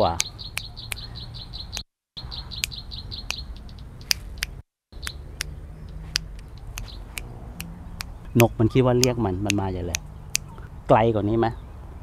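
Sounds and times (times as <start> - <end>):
bird chirping rapidly: 0.0 - 12.0
finger snaps: 4.1 - 10.5.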